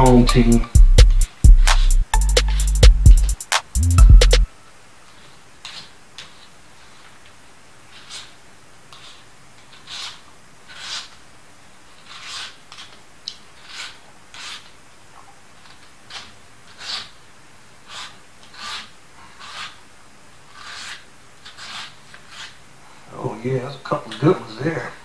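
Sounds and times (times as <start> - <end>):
peeler scraping plantain skin: 7.9 - 11.2, 11.9 - 14.8, 15.6 - 19.8, 20.4 - 22.6.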